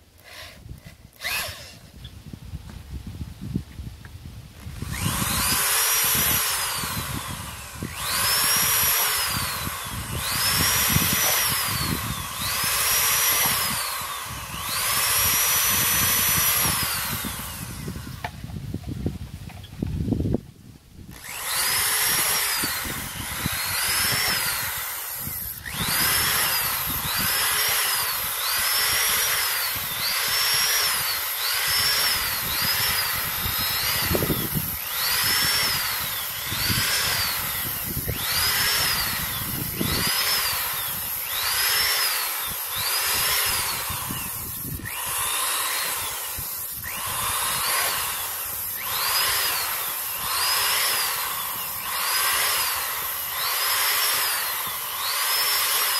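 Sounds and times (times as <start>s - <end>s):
electric drill motor: 0.0s - 2.2s, 4.5s - 20.0s, 21.0s - 55.9s.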